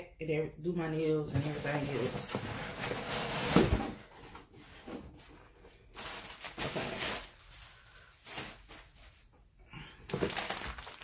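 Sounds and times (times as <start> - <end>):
plastic and cardboard rustling: 1.3 - 9.4, 10.0 - 11.0.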